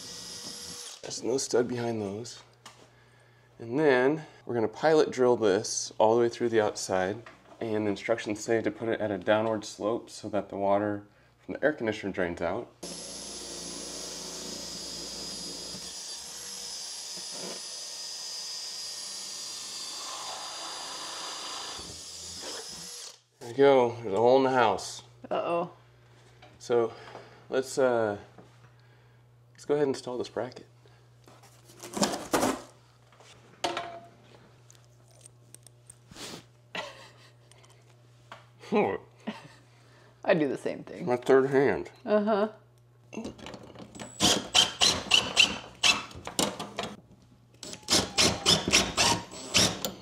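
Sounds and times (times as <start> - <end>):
electric drill whining: 0.0 - 1.0, 12.8 - 23.2, 44.0 - 46.2, 47.6 - 50.0.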